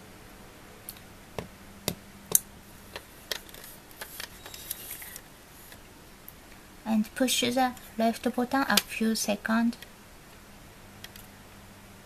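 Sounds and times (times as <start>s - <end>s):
rubbing and rustling of handling: 2.7s - 5.9s.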